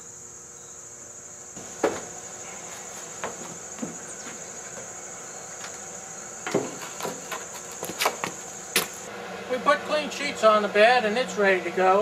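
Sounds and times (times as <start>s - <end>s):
insects chirring: 0.0s - 9.3s
footsteps on van floor: 1.6s - 9.1s.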